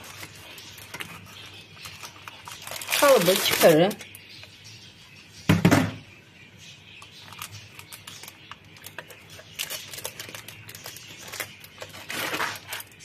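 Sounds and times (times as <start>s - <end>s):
baking paper rustling: 0.0s - 4.2s, 7.2s - 13.0s.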